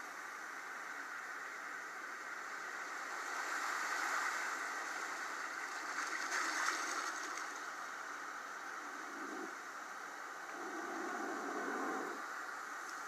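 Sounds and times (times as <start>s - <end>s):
water rushing and splashing: 2.9s - 8.2s.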